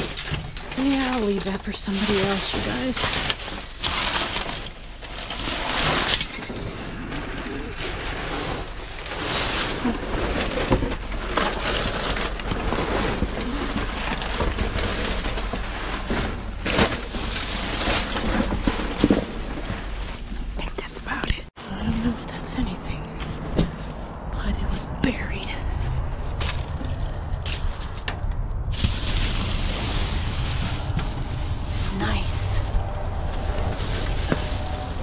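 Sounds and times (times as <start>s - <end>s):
plastic bags crinkling: 0.0s - 20.2s, 25.9s - 35.0s.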